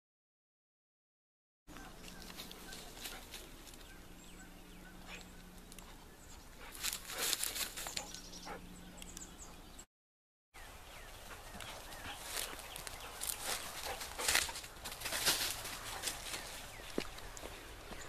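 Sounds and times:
footsteps through dry grass: 1.7s - 4.0s, 6.6s - 8.4s, 11.1s - 18.0s
low steady hum: 1.7s - 9.8s.

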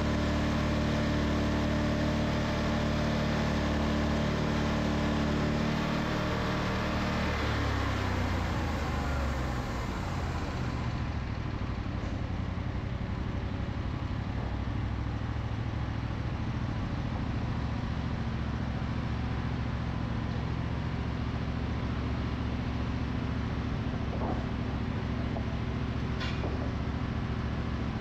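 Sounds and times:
sawmill machinery running: 0.0s - 11.3s, 21.3s - 28.0s.

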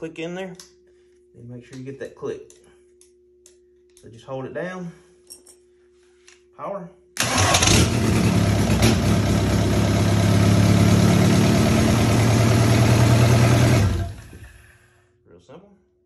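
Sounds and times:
diesel engine starting and running: 7.2s - 14.7s.

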